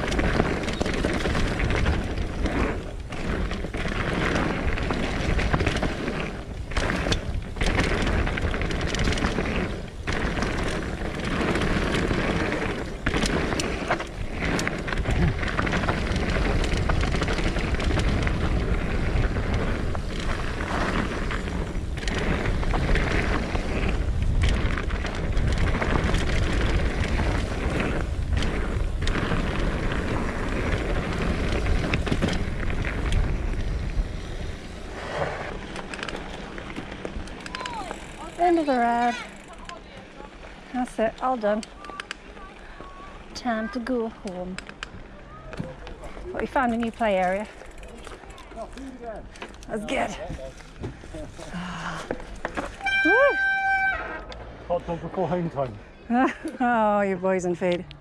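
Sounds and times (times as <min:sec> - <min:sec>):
wind buffeting microphone: 0:00.0 - 0:39.5
bike tyres rumbling on dirt: 0:00.0 - 0:57.8.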